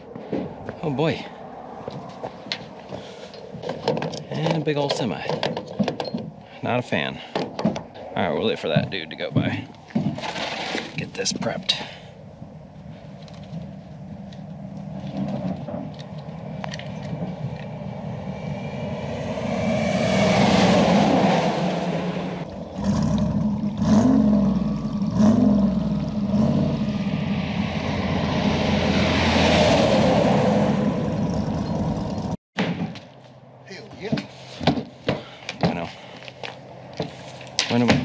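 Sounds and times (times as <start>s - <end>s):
highway traffic passing: 0.0s - 32.4s, 33.0s - 38.0s
wind and tyre noise: 0.0s - 38.0s
truck engine droning: 12.2s - 32.4s.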